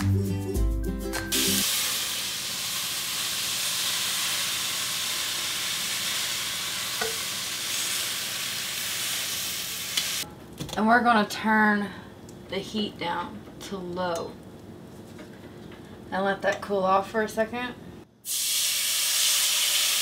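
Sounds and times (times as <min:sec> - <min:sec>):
background music: 0:00.0 - 0:01.6
frying pan sizzling: 0:01.3 - 0:10.3, 0:18.2 - 0:20.0.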